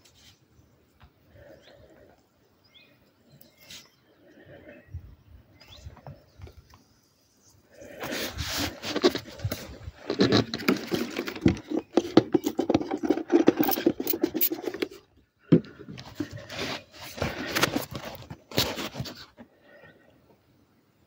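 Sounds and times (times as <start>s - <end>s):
phone handling rubbing and scraping: 8.0s - 19.4s.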